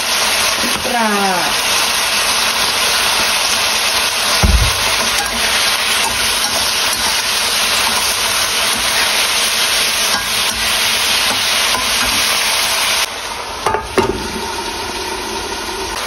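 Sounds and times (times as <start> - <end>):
food sizzling in a wok: 0.0 - 16.0
spatula knocking on pan: 4.4 - 5.5.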